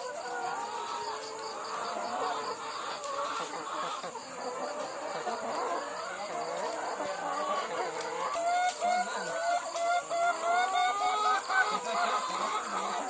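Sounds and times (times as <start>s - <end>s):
hens calling: 0.0s - 13.0s.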